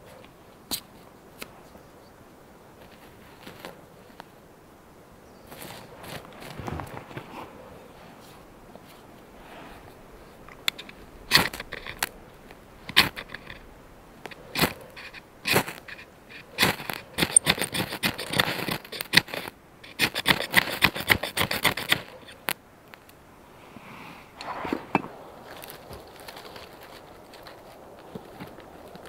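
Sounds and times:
knife scraping ferrocerium rod: 12.8 - 13.6, 14.3 - 22.5.

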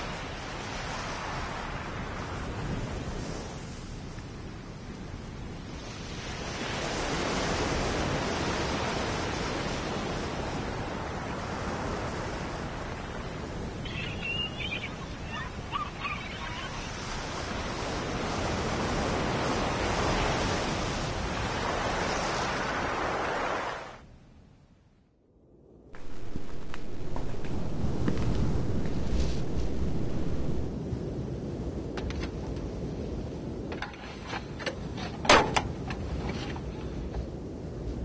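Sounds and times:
sea waves washing onto beach: 0.0 - 24.0, 26.0 - 38.0
brief high-pitched calls: 13.9 - 16.9.

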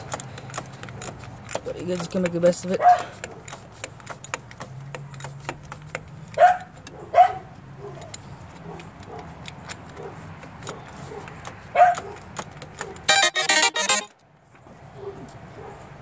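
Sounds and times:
ratchet wrench clicking: 0.0 - 6.1, 11.4 - 13.2
dog barking: 2.8 - 3.1, 6.4 - 8.0, 11.1 - 12.2, 15.0 - 15.9.

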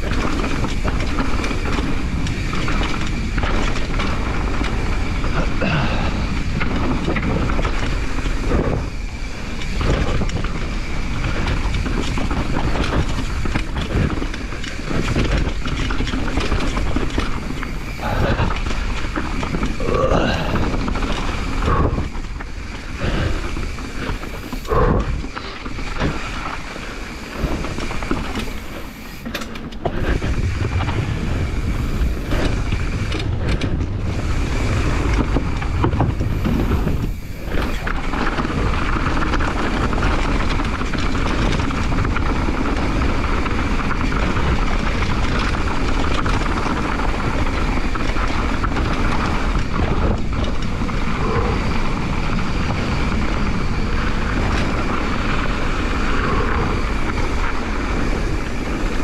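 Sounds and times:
bike tyres over rough ground: 0.0 - 59.0
wind rushing over microphone: 0.0 - 59.0.

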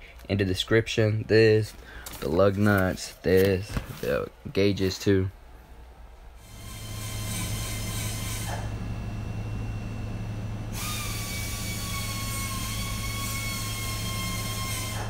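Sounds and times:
low machine hum: 0.0 - 15.0
air tool hissing whine: 6.4 - 9.6, 10.4 - 15.0.

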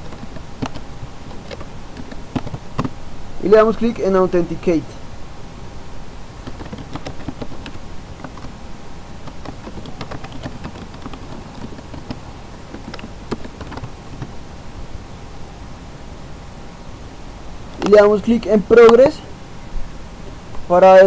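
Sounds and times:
keyboard keys clicking: 0.0 - 3.0, 6.4 - 8.6, 9.2 - 14.4.

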